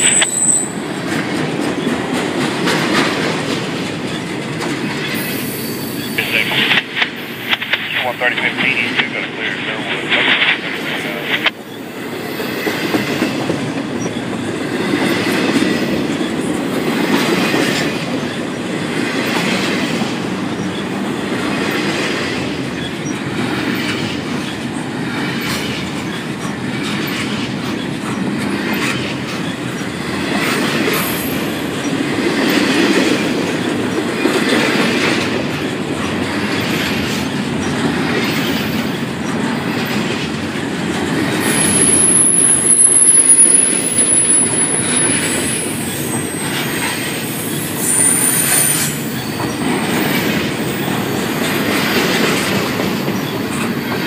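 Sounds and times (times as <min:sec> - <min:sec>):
train wheels rumbling on rail: 0:00.0 - 0:54.0
wheels clacking over rail joints: 0:00.8 - 0:05.3.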